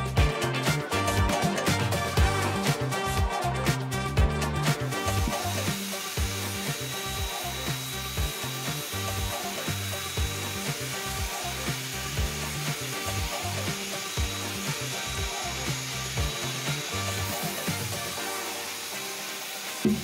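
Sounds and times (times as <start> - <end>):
background music with steady beat: 0.0 - 20.0
water spraying from shower head: 4.9 - 20.0.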